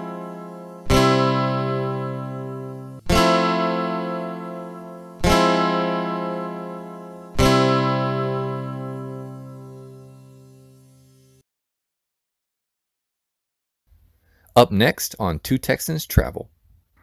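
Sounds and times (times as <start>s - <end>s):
acoustic guitar chords strummed: 0.0s - 11.4s.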